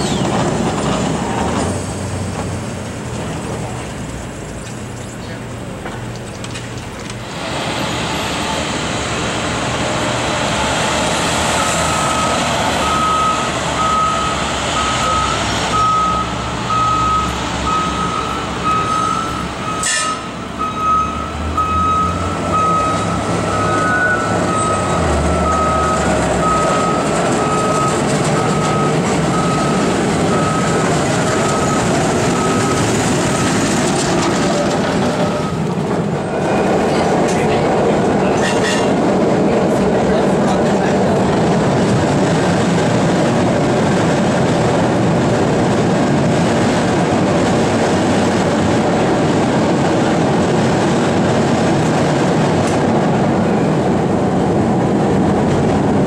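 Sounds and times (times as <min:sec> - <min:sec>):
street traffic: 0:00.0 - 0:56.0
short electronic beeps: 0:11.6 - 0:33.5.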